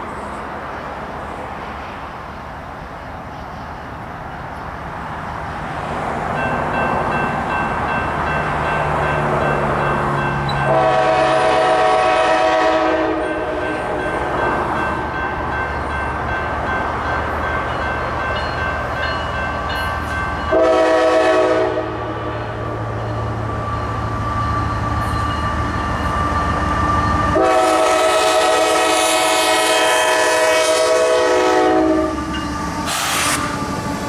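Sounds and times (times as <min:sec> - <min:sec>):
rush of passing locomotive: 0:00.0 - 0:34.0
locomotive air horn blasts: 0:10.6 - 0:13.6, 0:20.5 - 0:22.3, 0:27.3 - 0:33.5.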